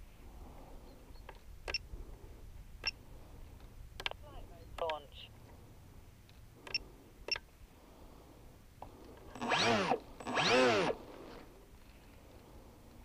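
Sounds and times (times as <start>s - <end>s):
electric motor and propeller spinning up: 9.3s - 11.4s.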